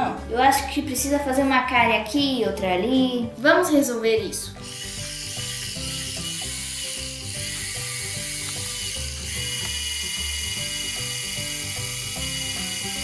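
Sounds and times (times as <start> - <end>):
background music: 0.0 - 13.0
toy drill motor whirring: 4.5 - 13.0.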